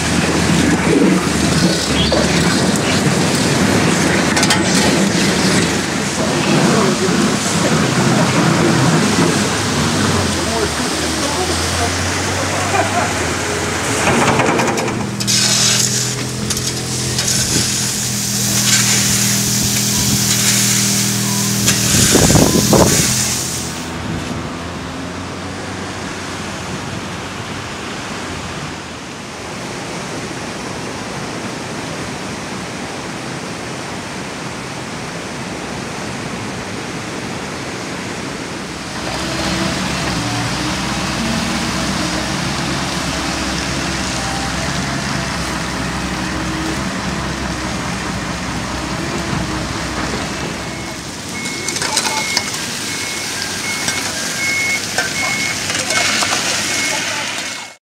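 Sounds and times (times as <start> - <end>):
shovels scraping wet pavement: 0.0 - 23.9, 50.1 - 57.8
excavator diesel engine running: 0.0 - 27.5, 38.6 - 57.8.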